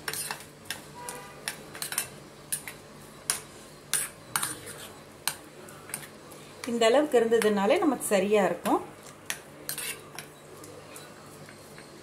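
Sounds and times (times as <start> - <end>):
spoon scraping ceramic bowl: 0.1 - 0.4, 9.7 - 10.3.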